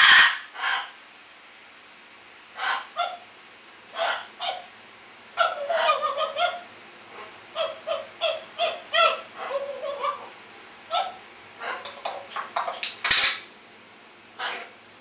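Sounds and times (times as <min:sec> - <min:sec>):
parrot calling: 0:00.0 - 0:01.0, 0:02.6 - 0:03.3, 0:03.9 - 0:04.7, 0:05.4 - 0:13.5, 0:14.4 - 0:14.8.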